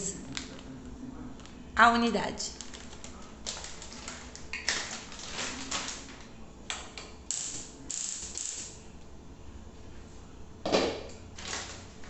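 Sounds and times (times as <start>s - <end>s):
plastic packaging tearing and crumpling: 2.5s - 6.3s.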